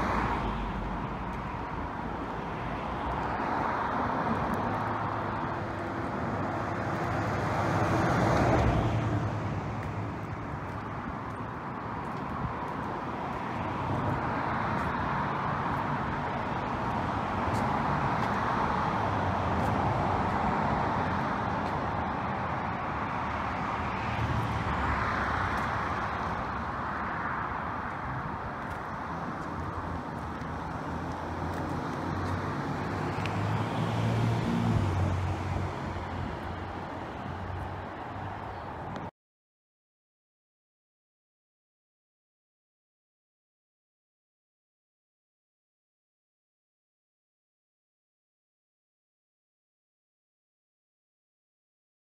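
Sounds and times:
road traffic noise: 0.0 - 39.1.

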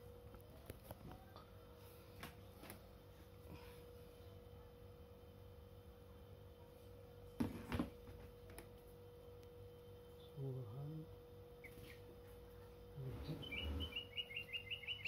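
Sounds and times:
bird chirps: 11.6 - 12.1, 13.2 - 15.0
bird high call: 13.2 - 15.0.

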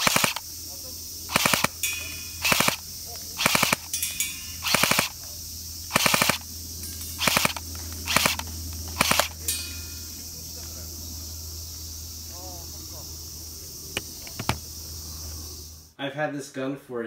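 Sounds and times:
airsoft pistol firing bursts: 0.0 - 0.4, 1.3 - 2.8, 3.4 - 3.9, 4.6 - 5.2, 5.9 - 6.5, 7.2 - 9.4
faint metallic ringing: 1.8 - 2.4, 3.9 - 4.6, 9.4 - 10.4.

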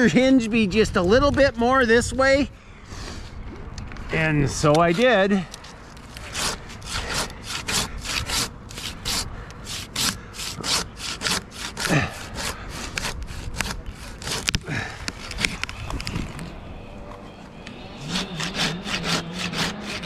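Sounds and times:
handsaw cutting wood: 6.1 - 14.6, 17.9 - 20.0.

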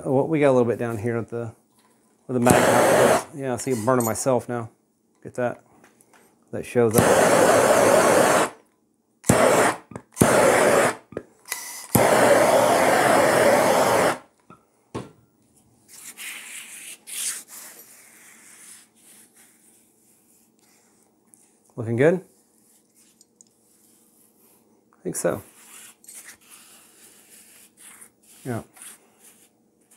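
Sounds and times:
gas torch flame hissing: 2.3 - 4.0, 6.9 - 8.6, 9.2 - 14.3.

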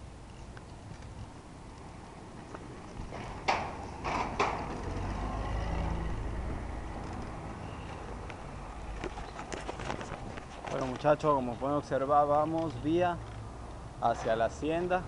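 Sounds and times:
low vehicle engine rumble: 0.0 - 15.0
wheels clanking over metal grate: 3.1 - 5.2.

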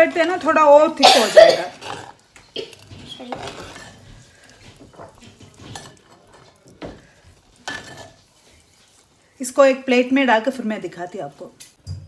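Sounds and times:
spoon scraping clay pot: 1.6 - 9.2.

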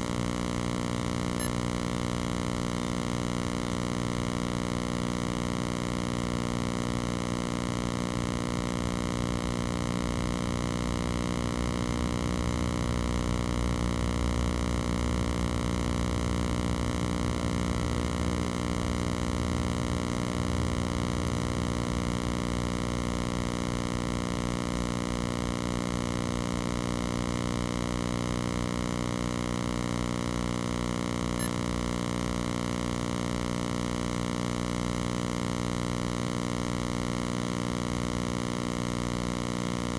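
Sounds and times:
electronic buzzing tone: 0.0 - 3.2, 29.9 - 32.2.

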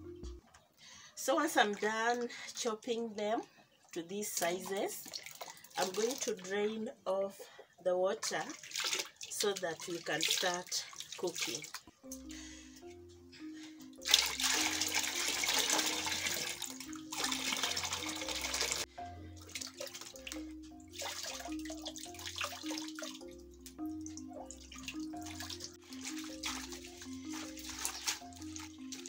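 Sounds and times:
water pouring and splashing: 4.6 - 6.5, 8.4 - 11.9, 14.0 - 29.0.

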